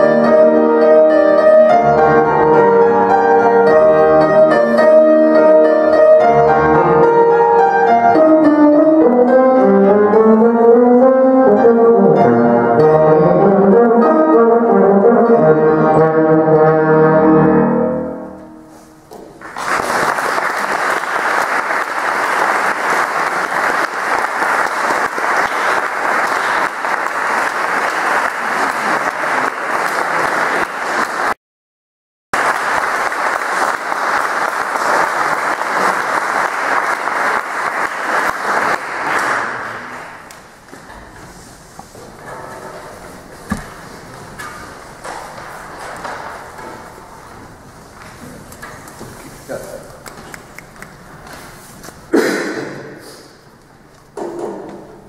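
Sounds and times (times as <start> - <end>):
piano: 0.0 - 31.4, 32.4 - 55.0
audience applauding: 19.4 - 31.4, 32.4 - 40.5.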